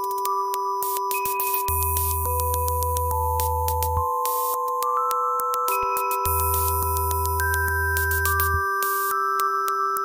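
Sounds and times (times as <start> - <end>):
glitch electronic music: 5.7 - 9.2.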